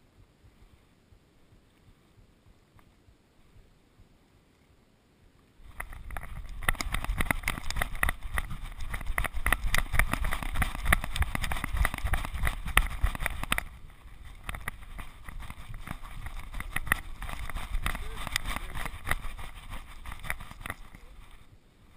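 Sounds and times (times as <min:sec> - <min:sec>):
rapid knocks of camera: 0:05.6 - 0:21.4
wind buffeting microphone: 0:05.6 - 0:21.6.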